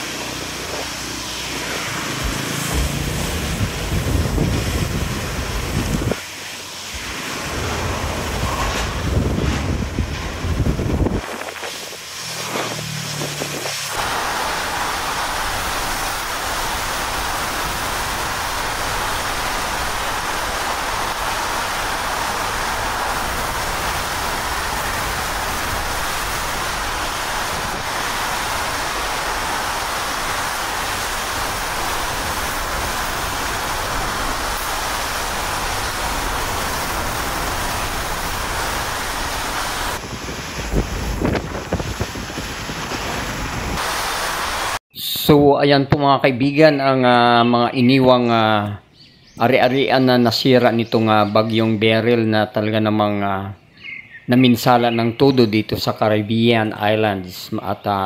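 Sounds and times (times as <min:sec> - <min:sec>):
hurricane wind rushing: 0:00.0 - 0:44.8
low hum: 0:00.7 - 0:06.2, 0:06.8 - 0:11.2.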